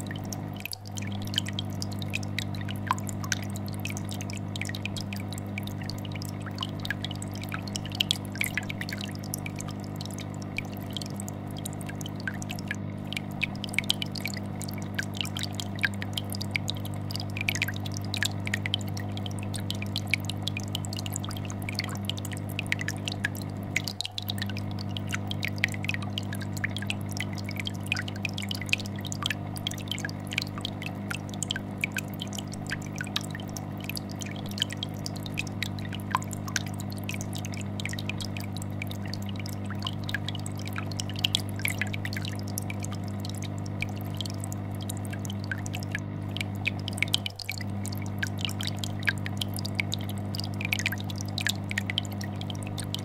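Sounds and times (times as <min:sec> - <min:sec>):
air bubbles popping: 0:00.0 - 0:53.0
aquarium filter humming: 0:00.0 - 0:53.0.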